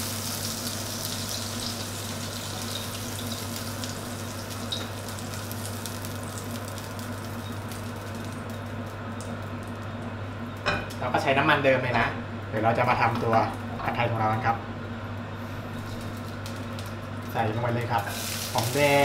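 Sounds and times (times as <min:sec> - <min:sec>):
hot oil sizzling and crackling: 0:00.0 - 0:11.4, 0:15.5 - 0:19.0
steady low hum: 0:00.0 - 0:19.0.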